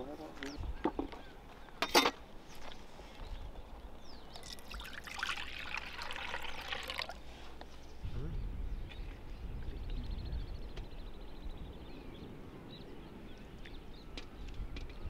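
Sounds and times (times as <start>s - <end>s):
liquid pouring into steel bowl: 4.4s - 7.2s.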